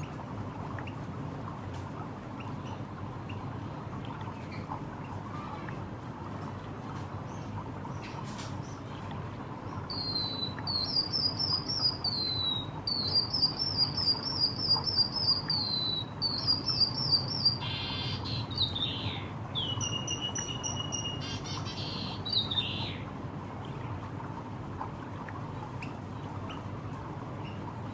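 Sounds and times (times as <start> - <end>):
bird singing: 9.9 - 23.1
high chirping trills: 9.9 - 23.1.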